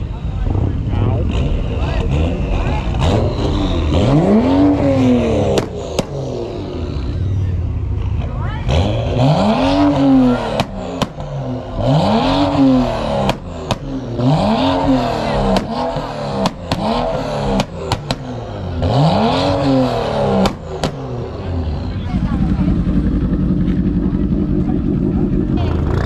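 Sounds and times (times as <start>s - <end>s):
car engine revving: 0.0s - 26.0s
exhaust pops: 5.4s - 6.3s, 10.5s - 11.5s, 13.2s - 14.2s, 14.8s - 18.5s, 20.3s - 21.1s.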